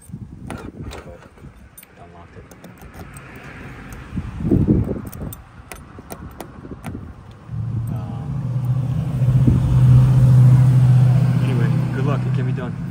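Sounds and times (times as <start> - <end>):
keys rattling in a door lock: 0.0 - 4.1, 4.8 - 7.0
vehicle engine hum: 0.5 - 12.9.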